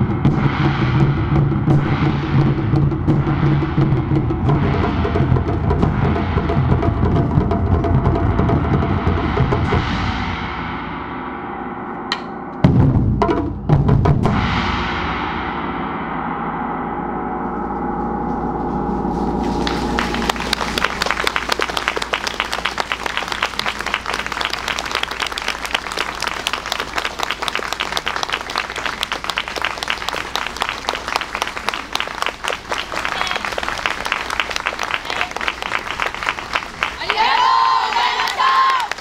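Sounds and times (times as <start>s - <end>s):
large gong ringing: 15.7s - 22.1s
audience applause: 19.6s - 39.0s.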